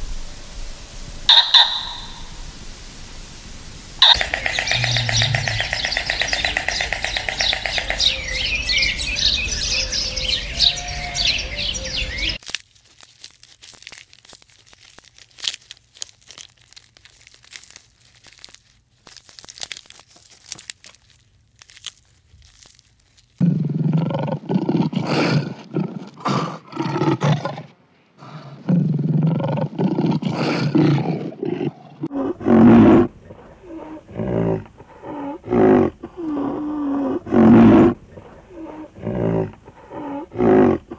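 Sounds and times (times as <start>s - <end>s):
large animal calling loudly: 1.3s - 2.3s, 4.0s - 12.4s
small birds chirping: 1.3s - 2.3s, 4.0s - 12.4s
faint clicks and crunching: 12.4s - 23.6s.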